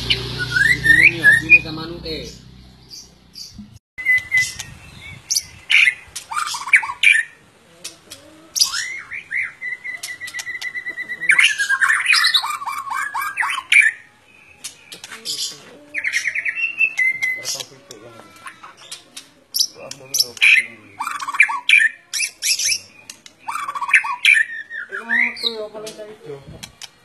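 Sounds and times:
bird singing whistled song: 0.0s - 1.8s, 2.9s - 7.4s, 8.6s - 14.1s, 16.0s - 17.7s, 19.6s - 25.6s.

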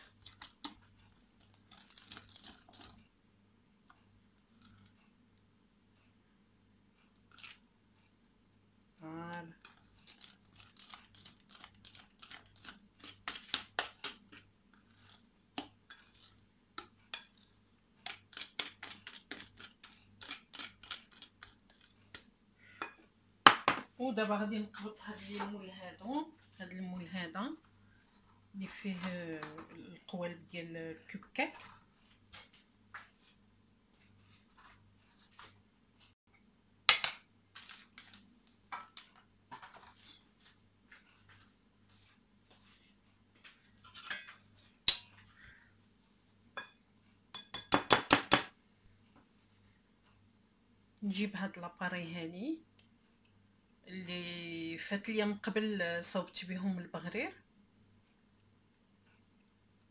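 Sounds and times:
dishes knocking and clinking: 22.8s - 23.9s, 46.6s - 48.5s.

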